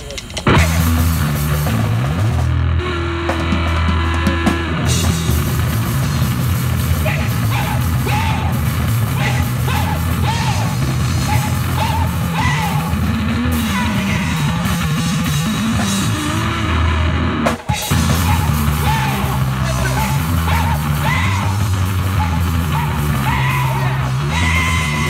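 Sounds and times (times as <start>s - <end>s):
amplified rock guitar: 0.0s - 25.0s
drum kit: 0.0s - 25.0s.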